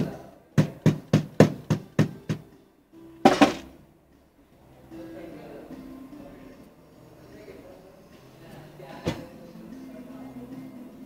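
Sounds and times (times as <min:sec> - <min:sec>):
sharp knocks: 0:03.3 - 0:03.7.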